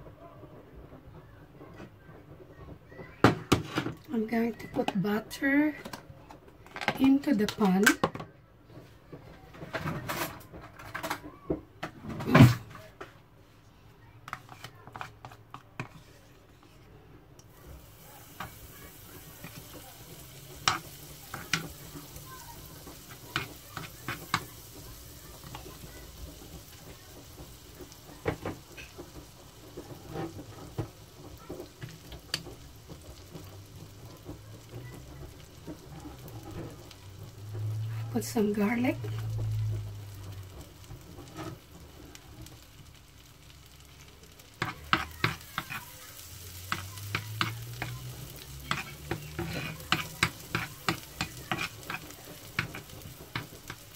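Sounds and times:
butter sizzling in a pan: 17.4 - 53.9
utensil clicking against pan: 25.4 - 37.8, 44.2 - 53.9.

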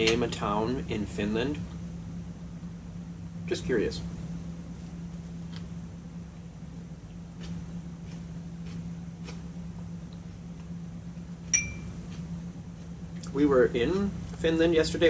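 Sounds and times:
low cabin hum: 0.0 - 15.0
bright ringing clink: 11.5 - 11.9.

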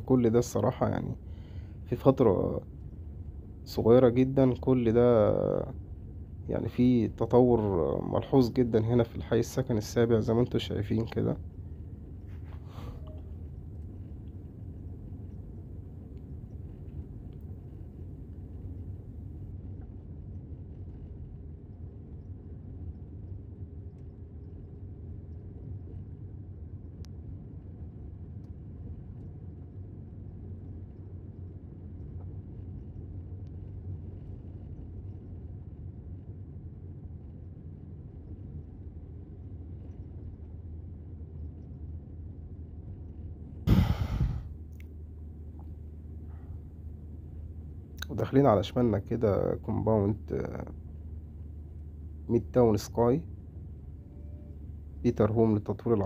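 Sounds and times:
car road and engine rumble: 0.0 - 19.6, 42.2 - 56.0
short loud burst of noise: 43.7 - 44.5.

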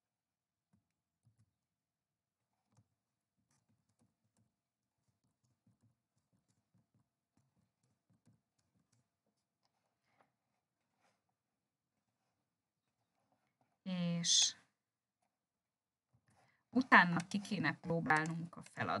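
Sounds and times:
soft keyboard typing: 2.6 - 9.8, 16.8 - 19.0.

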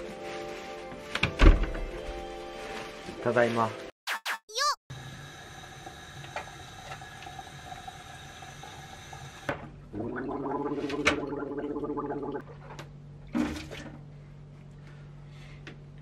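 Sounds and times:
person gargling: 9.9 - 12.4.

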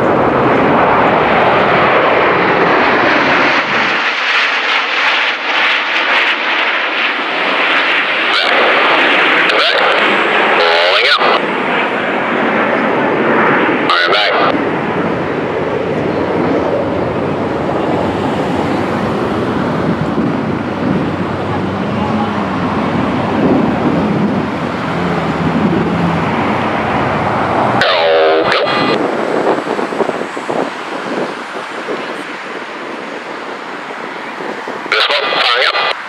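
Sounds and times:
jet engines passing overhead: 0.0 - 36.0
warbling radio tone: 8.2 - 11.4, 13.9 - 14.6, 27.8 - 29.0, 34.9 - 36.0
radio static with crackles: 8.2 - 11.5, 13.9 - 14.6, 27.8 - 29.0, 34.9 - 36.0.

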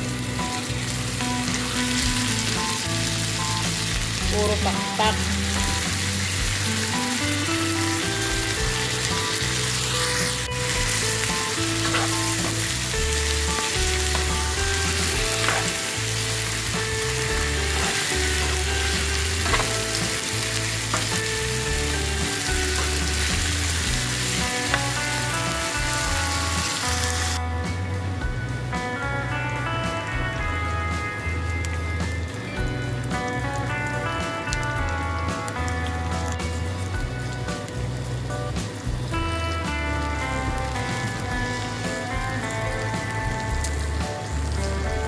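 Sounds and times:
background music: 0.0 - 45.0
chicken sizzling in oil: 0.0 - 45.0.

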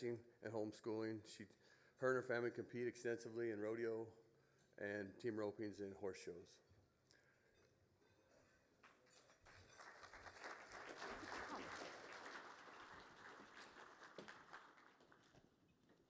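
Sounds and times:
faint audience applause: 8.8 - 15.6.

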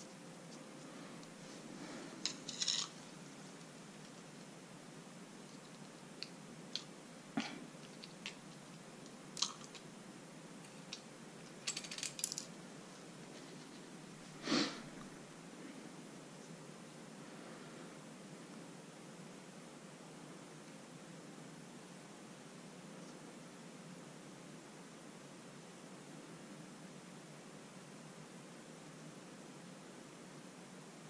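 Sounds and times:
faint room tone hiss: 0.0 - 31.0
small metal parts clinking: 2.2 - 3.0, 9.4 - 9.8, 10.6 - 12.6.

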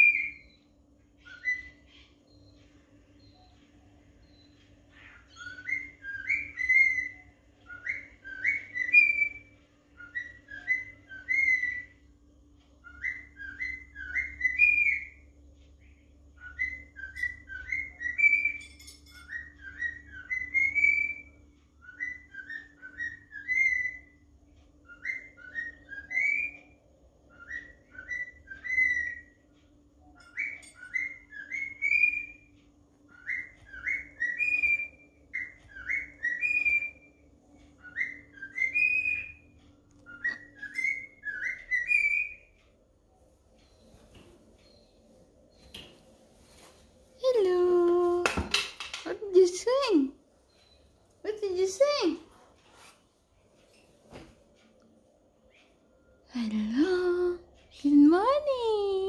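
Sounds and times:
cockatiel whistling a tune: 0.0 - 0.6, 1.2 - 1.8, 5.2 - 12.0, 12.8 - 15.2, 16.4 - 18.6, 19.2 - 24.2, 24.8 - 29.4, 30.2 - 32.5, 33.1 - 37.1, 37.8 - 42.5.

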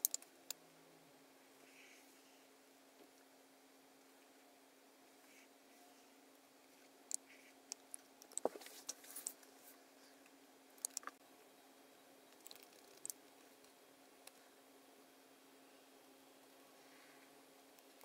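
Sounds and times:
faint steady hum: 0.0 - 18.0
keyboard and mouse clicks: 7.1 - 9.4, 10.8 - 11.2, 12.3 - 13.2.

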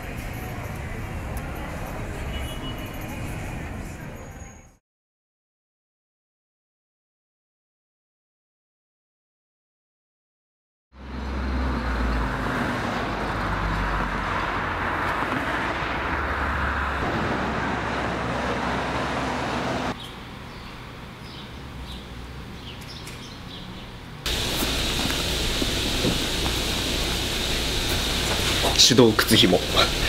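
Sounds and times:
street traffic rumble and hiss: 0.0 - 4.8, 11.0 - 30.0.

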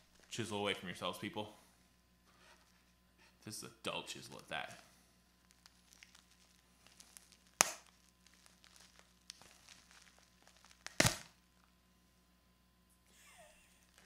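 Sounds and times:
packaging clicking and crinkling: 5.4 - 11.3
chisel cracking packaging: 5.4 - 11.4.

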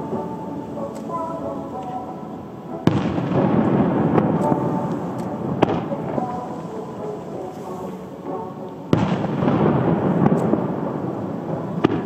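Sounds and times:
firework shells bursting: 2.9 - 10.9.

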